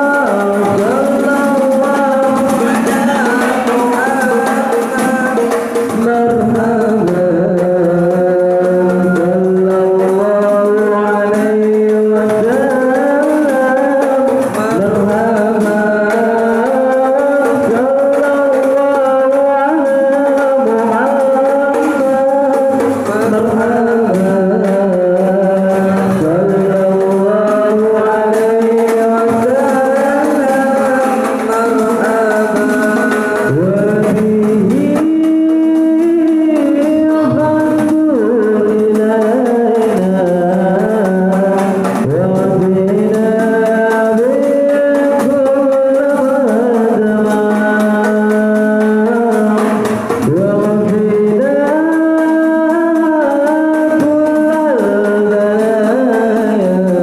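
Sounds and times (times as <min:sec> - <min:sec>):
frame drums: 0:00.0 - 0:57.0
men singing a chant: 0:00.0 - 0:57.0.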